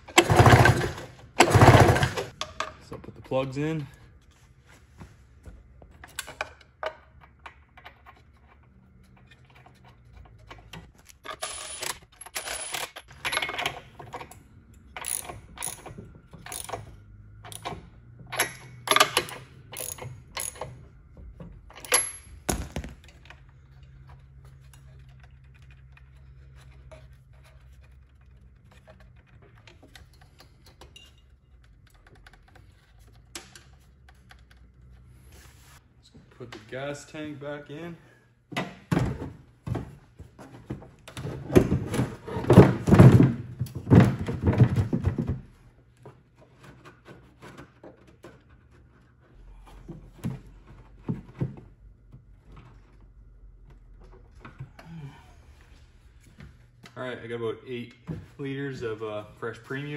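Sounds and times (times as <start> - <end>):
ratchet wrench clicking: 15.0 - 17.7, 18.4 - 20.7.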